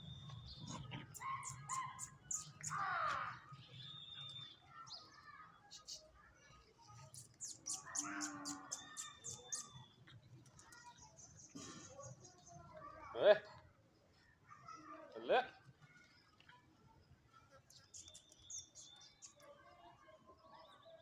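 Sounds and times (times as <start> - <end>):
small birds chirping: 0.0 - 15.1, 15.8 - 21.0.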